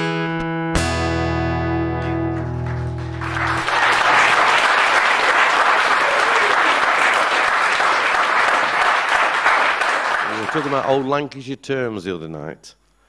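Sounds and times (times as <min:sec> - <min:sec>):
acoustic guitar chord ringing: 0:00.0 - 0:03.3
audience applause: 0:02.3 - 0:11.3.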